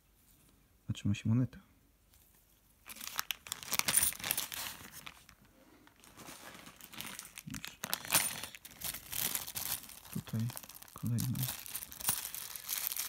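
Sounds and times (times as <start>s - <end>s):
plastic bag of coins crinkling: 2.8s - 13.0s.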